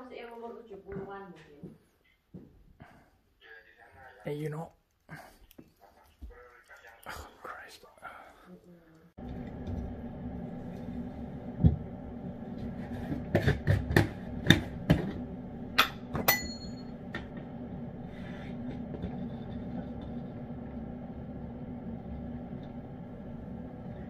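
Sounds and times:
low hum: 6.3 - 24.0.

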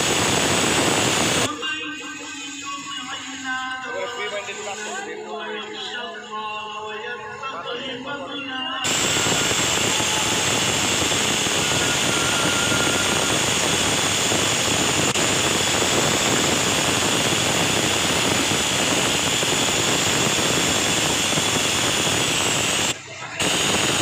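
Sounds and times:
sewing machine whirring: 8.8 - 24.0.

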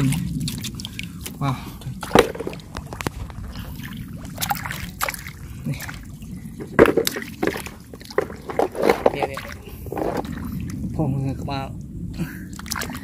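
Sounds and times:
hands splashing in muddy water: 2.0 - 10.7.

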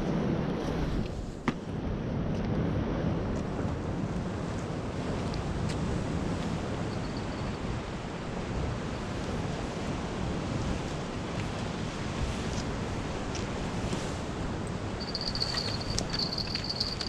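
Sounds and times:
sea surf breaking: 7.7 - 17.0
wind rushing: 15.0 - 17.0.

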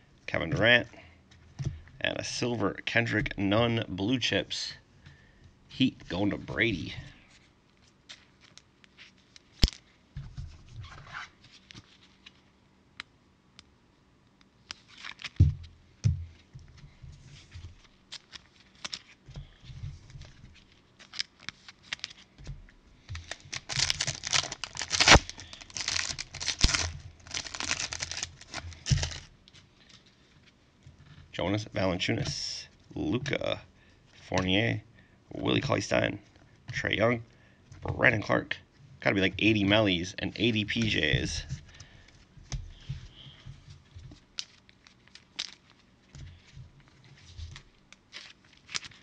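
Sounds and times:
wrapper tearing and crinkling: 17.8 - 19.2, 20.7 - 22.3, 23.2 - 29.3, 44.2 - 46.0, 47.1 - 49.0.

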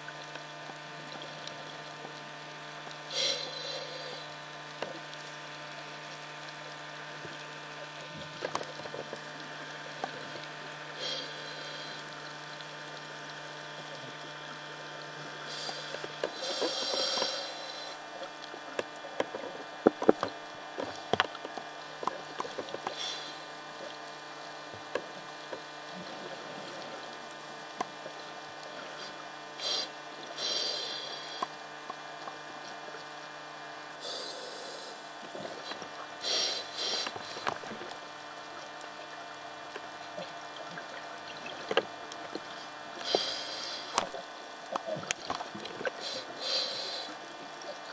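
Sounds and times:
regulator breathing underwater: 3.1 - 4.4, 11.0 - 12.2, 15.4 - 18.0, 22.9 - 23.6, 28.8 - 31.6, 34.0 - 37.7, 42.5 - 44.2, 45.8 - 47.2.

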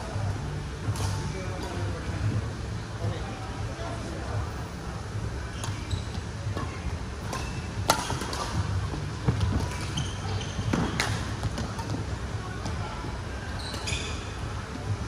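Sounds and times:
steady low hum: 0.0 - 13.6
racket hitting shuttlecock: 7.3 - 8.6.

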